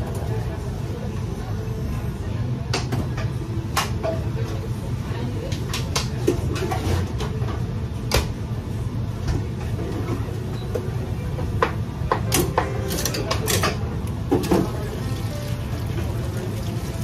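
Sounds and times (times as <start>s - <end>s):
ventilation hum: 0.0s - 17.0s
dishes and utensils clattering: 11.6s - 15.1s.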